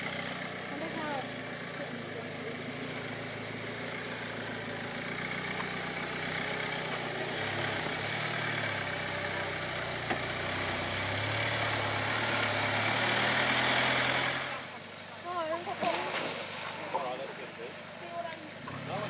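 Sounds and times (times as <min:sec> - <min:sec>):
off-road vehicle engine at low revs: 0:00.0 - 0:19.0.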